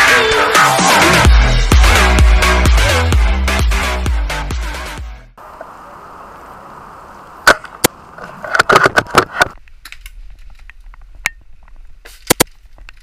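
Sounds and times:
quick cracks and clicks: 0:07.5 - 0:11.3, 0:12.0 - 0:13.0.

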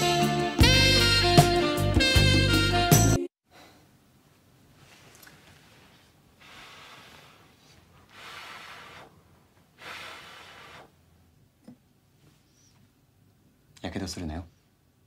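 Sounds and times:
breathy puffs: 0:06.4 - 0:11.0.

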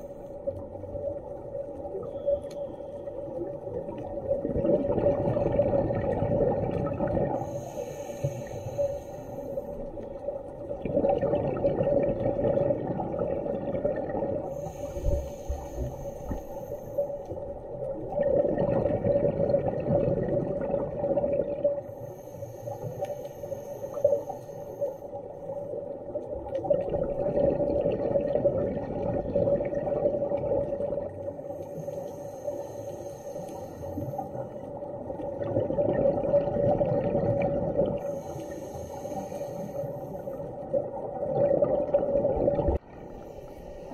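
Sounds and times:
bubbles rushing: 0:04.3 - 0:07.4, 0:10.8 - 0:14.4, 0:26.6 - 0:31.1, 0:35.4 - 0:38.0
diver breathing through regulator: 0:07.3 - 0:09.9, 0:14.4 - 0:17.4, 0:21.8 - 0:25.7, 0:31.4 - 0:34.6, 0:38.0 - 0:40.6, 0:43.0 - 0:43.9.

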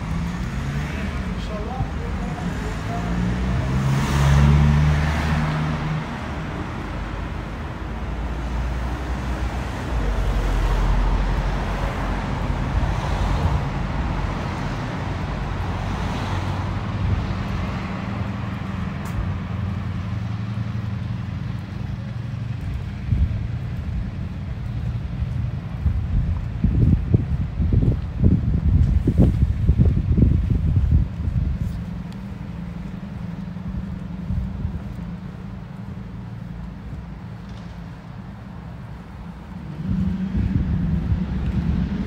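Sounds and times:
bus engine passing: 0:00.0 - 0:42.0
road traffic hum: 0:00.0 - 0:42.0.

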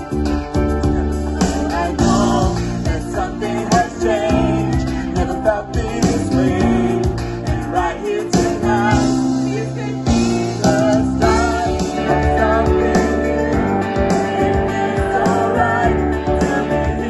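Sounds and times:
guitar: 0:00.0 - 0:17.0
person singing: 0:00.0 - 0:17.0
steady bass: 0:00.0 - 0:17.0.

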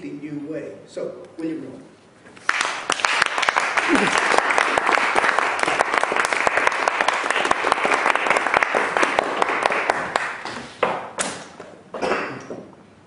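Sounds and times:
audience applauding: 0:02.4 - 0:10.6.

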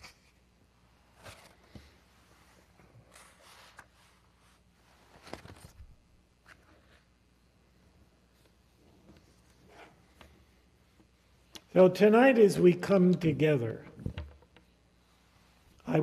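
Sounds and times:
papers rustling and shuffling: 0:01.1 - 0:04.2, 0:04.9 - 0:07.1.

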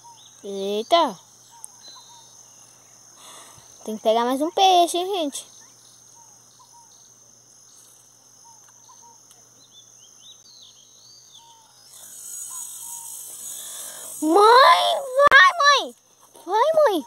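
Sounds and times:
insects droning: 0:00.0 - 0:17.0
loud high hiss: 0:12.0 - 0:15.9.

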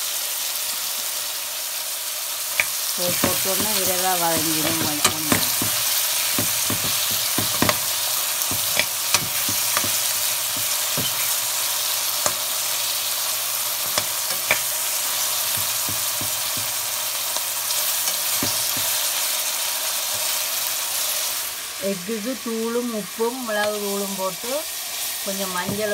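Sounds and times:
onions sizzling in oil: 0:00.0 - 0:25.9
ladle scraping pan: 0:02.6 - 0:11.6.

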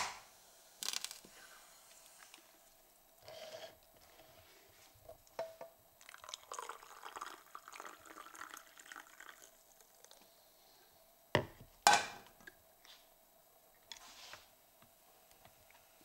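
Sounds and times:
water pouring into tumbler: 0:06.0 - 0:10.2.

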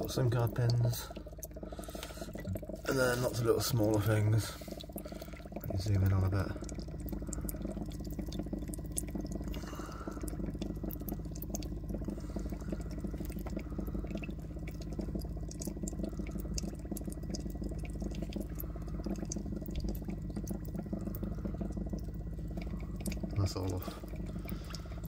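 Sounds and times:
air bubbler bubbling: 0:00.0 - 0:25.0
low continuous hum: 0:00.0 - 0:25.0.

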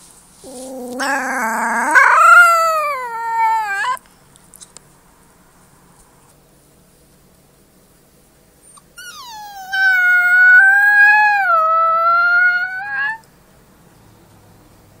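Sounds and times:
wolf pup howling: 0:00.5 - 0:04.0, 0:09.0 - 0:13.2.

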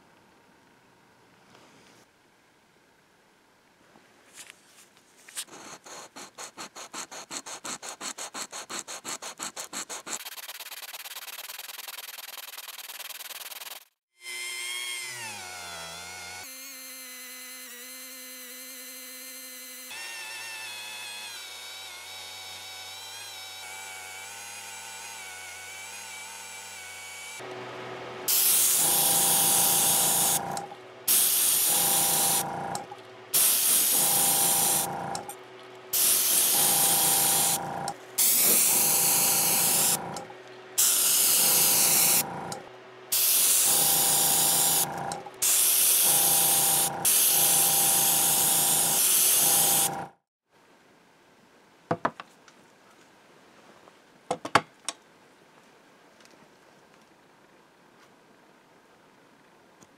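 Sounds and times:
rotary tool polishing metal: 0:05.4 - 0:13.8, 0:28.3 - 0:50.2
aerosol spray can bursts: 0:05.9 - 0:13.9, 0:33.3 - 0:34.9, 0:35.9 - 0:37.6.

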